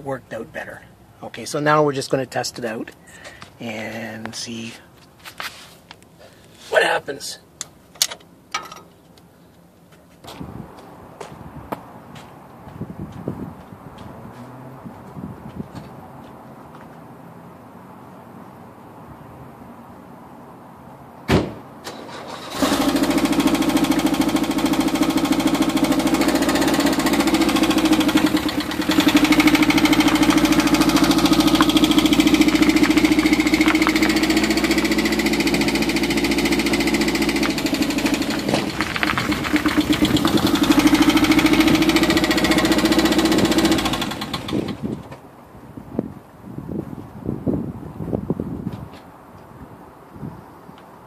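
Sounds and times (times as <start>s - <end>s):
engine cranking and starting: 21.8s - 45.1s
engine running steadily: 21.8s - 45.2s.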